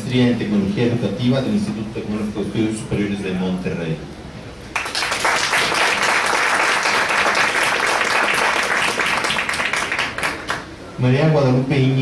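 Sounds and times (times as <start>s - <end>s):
audience applauding: 4.7s - 10.7s.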